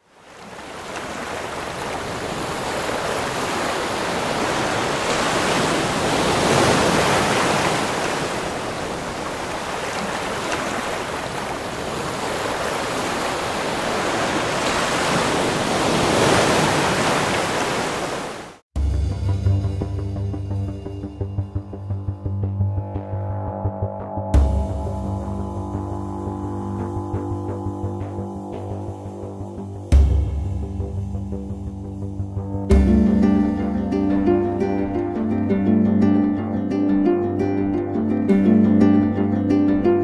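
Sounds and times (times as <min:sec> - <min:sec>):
waves washing ashore: 0:00.0 - 0:18.6
music with a low steady tone: 0:18.8 - 0:40.0.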